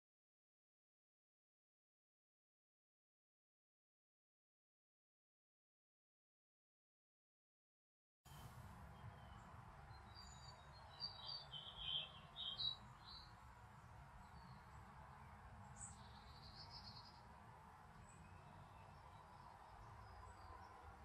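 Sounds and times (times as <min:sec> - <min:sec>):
low background noise: 0:08.3 - 0:21.0
small birds chirping: 0:08.9 - 0:21.0.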